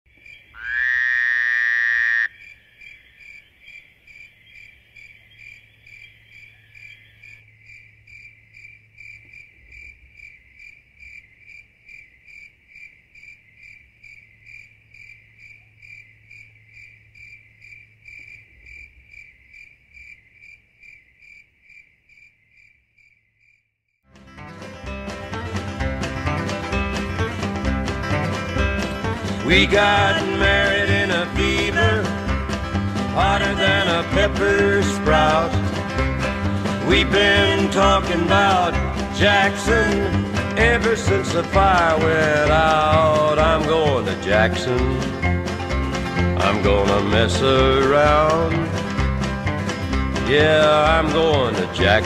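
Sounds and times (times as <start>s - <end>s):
insect chirping: 0.1s - 23.9s.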